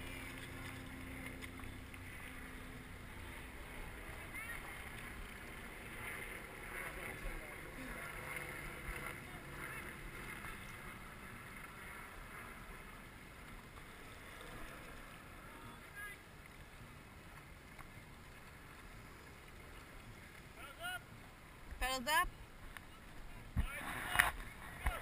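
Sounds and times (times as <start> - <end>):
murmur of voices: 0.0 - 11.9
wind and water hiss: 0.0 - 25.0.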